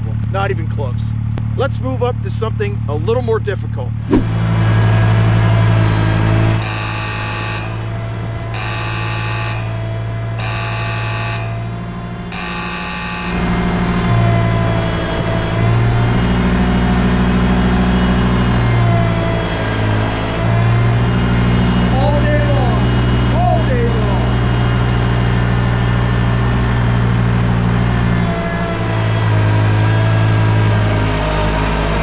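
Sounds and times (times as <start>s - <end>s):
tractor engine running: 0.0s - 32.0s
electronic warning beeps: 6.6s - 8.0s, 8.6s - 13.6s.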